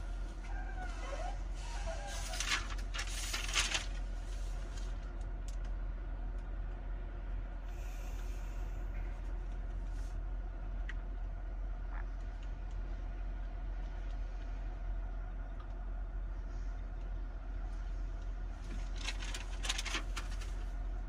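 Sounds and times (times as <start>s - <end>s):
steady low hum: 0.0s - 21.0s
short rustle: 0.2s - 5.1s.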